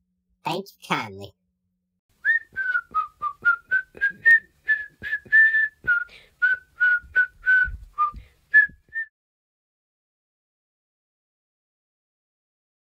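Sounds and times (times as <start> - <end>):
whistled tune: 2.2 - 9.1.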